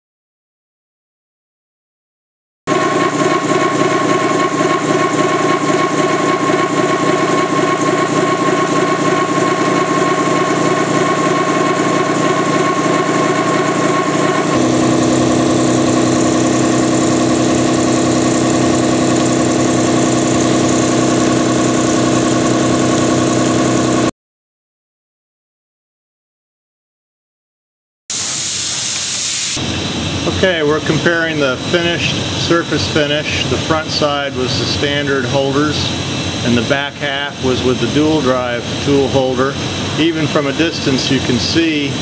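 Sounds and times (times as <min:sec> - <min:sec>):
face mill cutting metal: 0:02.7 - 0:24.1, 0:28.1 - 0:29.6.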